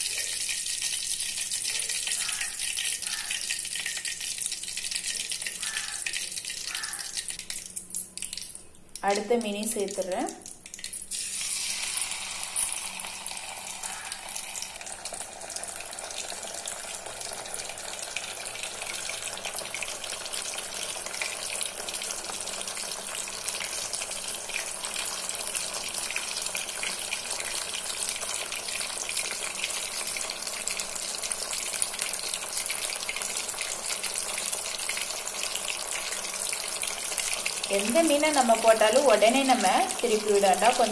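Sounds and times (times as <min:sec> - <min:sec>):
fish frying in hot oil: 0:00.0 - 0:08.4, 0:09.0 - 0:40.9.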